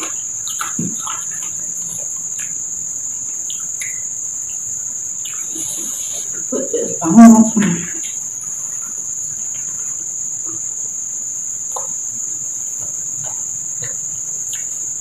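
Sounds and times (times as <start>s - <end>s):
chewing: 0.0s - 4.1s, 11.6s - 15.0s
insect trill: 0.0s - 15.0s.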